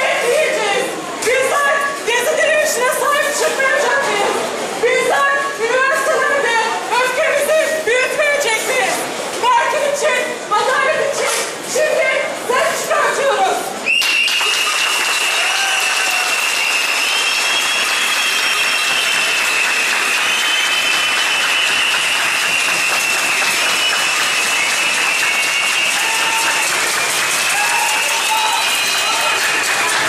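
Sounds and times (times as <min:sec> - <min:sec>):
crowd applauding: 0:13.8 - 0:30.0.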